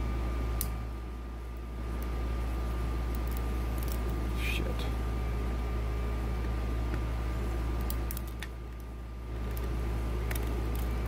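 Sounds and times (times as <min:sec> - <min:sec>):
low hum: 0:00.0 - 0:11.0.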